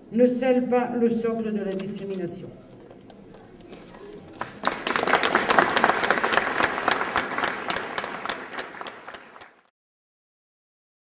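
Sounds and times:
audience applauding: 4.2s - 9.7s.

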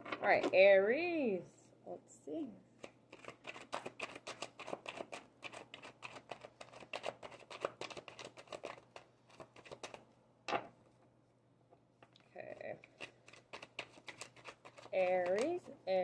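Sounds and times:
cards being shuffled: 2.8s - 10.7s, 12.8s - 15.8s.

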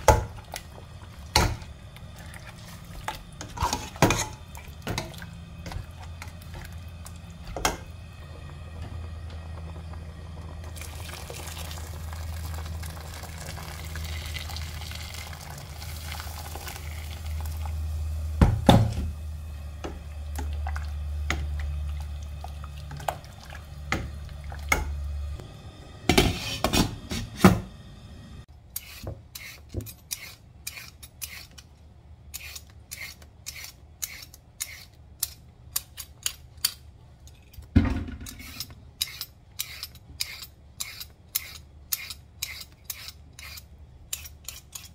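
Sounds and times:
steady low hum: 0.0s - 11.3s, 16.7s - 28.6s
peeler scraping carrot: 28.7s - 31.7s, 32.3s - 36.1s, 38.3s - 44.9s.

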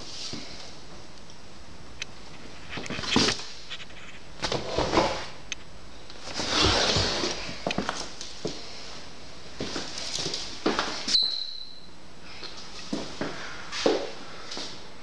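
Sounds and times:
rustling and scraping: 2.3s - 5.4s, 6.2s - 8.6s.

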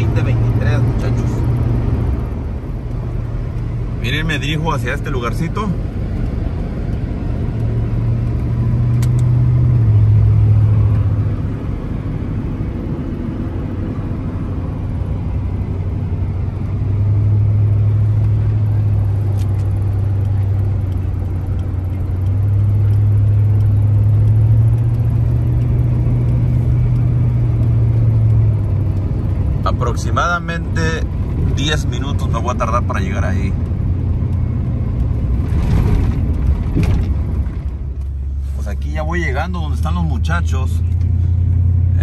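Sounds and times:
vehicle engine and road noise: 0.0s - 42.0s.

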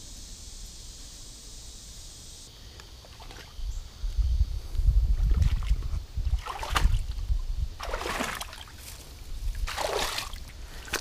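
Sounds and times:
low microphone rumble: 3.7s - 7.8s.

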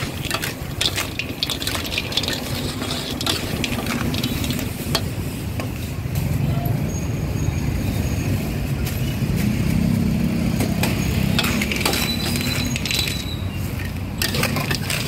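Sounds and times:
metal ladle scraping a wok: 0.0s - 5.9s, 10.7s - 15.0s.

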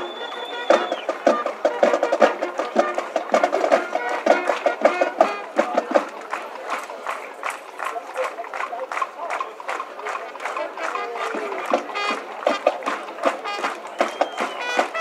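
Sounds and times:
fanfare trumpets: 0.0s - 6.4s, 10.4s - 15.0s.

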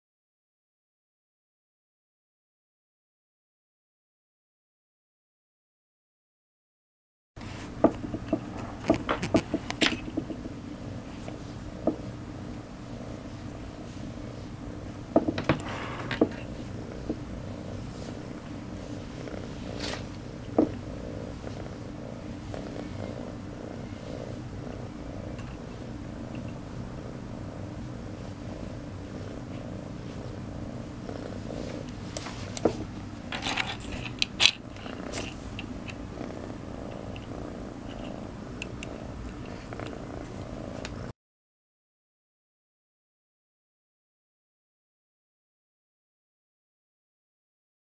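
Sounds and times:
kitten purring: 8.2s - 41.2s.

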